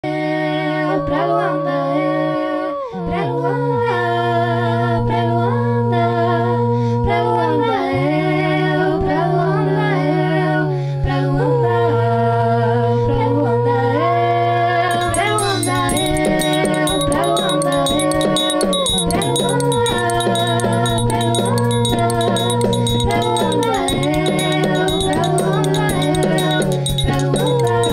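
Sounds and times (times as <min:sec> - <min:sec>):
a cappella voices singing: 0:00.0 - 0:27.9
rapid rattling percussion: 0:14.9 - 0:27.9.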